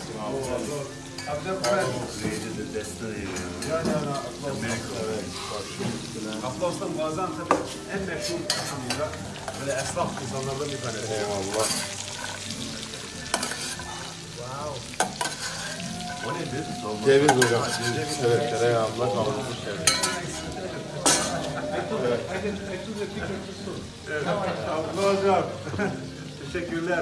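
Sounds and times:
meat sizzling in pans: 0:00.0 - 0:27.0
metal utensils clicking and scraping: 0:00.4 - 0:02.6, 0:08.2 - 0:10.4, 0:11.1 - 0:14.2, 0:14.9 - 0:16.5, 0:17.1 - 0:18.4, 0:19.8 - 0:21.7.

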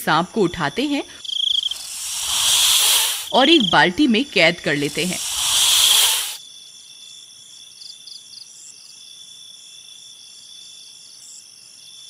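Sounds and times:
crickets chirping: 0:01.3 - 0:03.8, 0:04.7 - 0:06.4.

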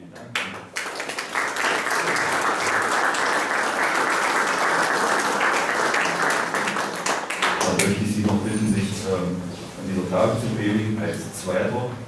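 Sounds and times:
audience applauding: 0:00.2 - 0:08.0.

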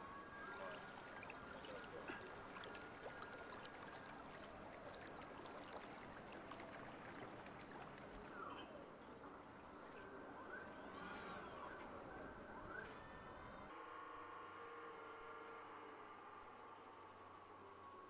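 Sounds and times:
water lapping and trickling: 0:00.0 - 0:18.0
light drips and ticks: 0:00.6 - 0:10.1.

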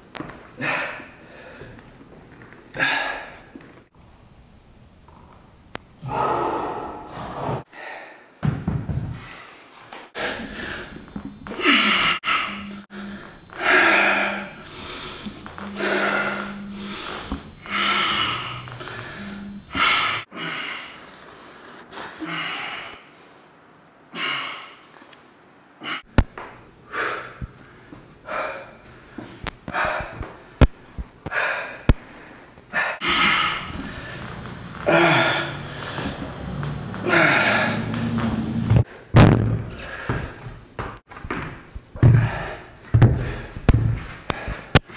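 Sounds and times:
man breathing hard: 0:00.6 - 0:01.8, 0:02.8 - 0:03.6, 0:07.7 - 0:08.4, 0:09.1 - 0:25.2, 0:26.8 - 0:30.6, 0:31.2 - 0:38.2, 0:39.7 - 0:40.6, 0:42.0 - 0:43.7.

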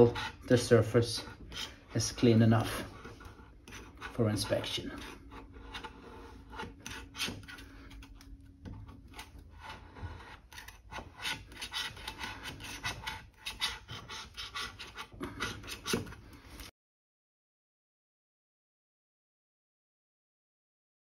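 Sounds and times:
hand scraper scraping pipe: 0:00.0 - 0:16.7.

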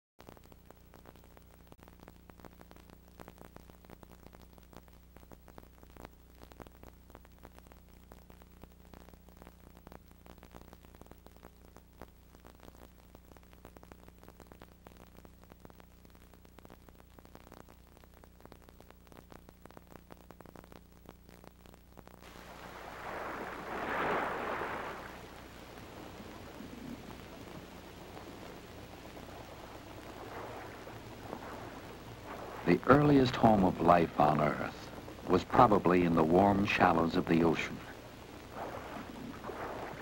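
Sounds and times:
crackling static: 0:00.0 - 0:40.0
faint low hum: 0:00.2 - 0:40.0
tape hiss: 0:00.2 - 0:40.0.

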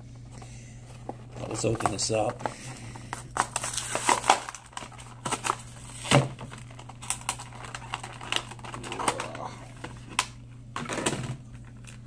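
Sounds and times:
plastic blister pack crinkling and cracking: 0:01.1 - 0:10.4.

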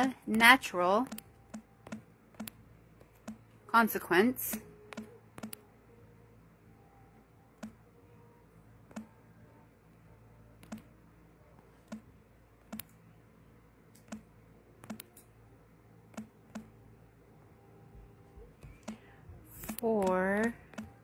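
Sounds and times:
faint room hum: 0:00.0 - 0:21.0.

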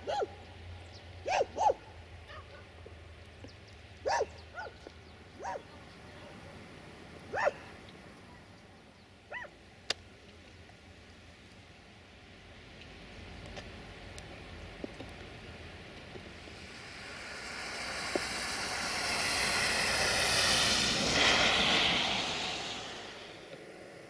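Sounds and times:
dog barking: 0:00.0 - 0:00.4, 0:01.2 - 0:02.6, 0:04.0 - 0:04.8, 0:05.4 - 0:05.7, 0:07.3 - 0:07.7, 0:09.3 - 0:09.6.

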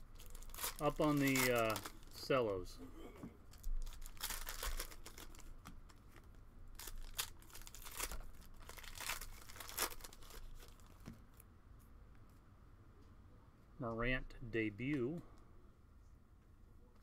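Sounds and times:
plastic packaging crinkling and tearing: 0:00.0 - 0:02.4, 0:03.5 - 0:11.0.

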